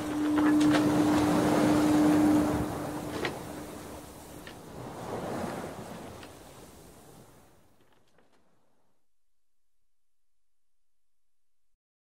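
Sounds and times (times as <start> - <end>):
steady low tone: 0.0 - 4.4
ocean surf: 0.0 - 7.9
wind: 0.0 - 9.0.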